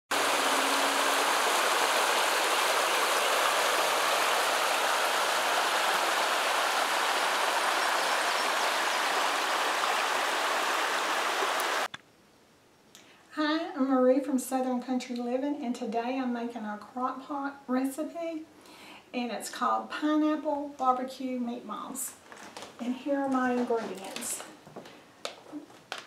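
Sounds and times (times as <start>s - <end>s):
creek water rushing over rocks: 0.1s - 11.9s.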